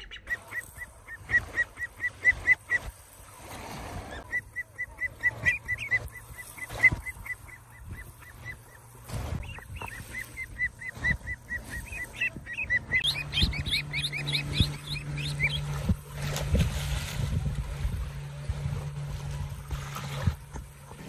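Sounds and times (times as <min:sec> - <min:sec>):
ducklings peeping: 0:00.0 - 0:16.0
low steady hum: 0:00.0 - 0:21.0.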